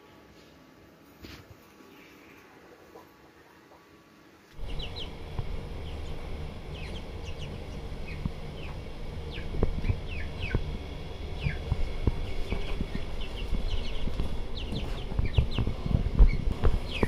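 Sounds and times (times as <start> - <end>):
chicks peeping: 4.5 - 17.0
steady low rumble: 4.6 - 17.0.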